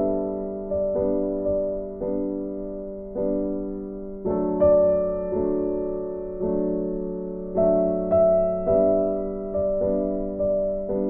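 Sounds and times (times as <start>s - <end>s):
piano chords ringing: 0.0s - 11.0s.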